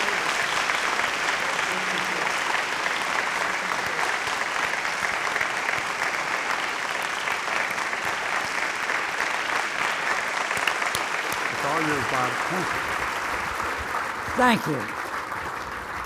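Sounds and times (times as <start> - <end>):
large audience applauding: 0.0 - 16.0.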